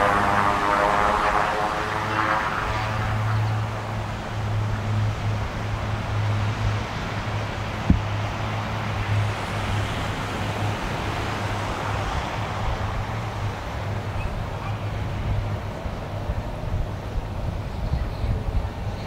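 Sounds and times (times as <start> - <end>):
propeller aircraft engines droning: 0.0 - 19.0.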